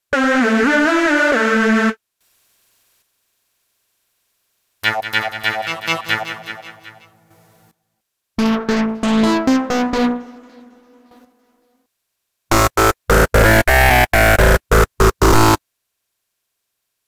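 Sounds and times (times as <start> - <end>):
distorted synth stabs: 12.5 - 15.6
harsh synth stab lead: 12.5 - 15.6
low synth lead notes: 12.5 - 15.6.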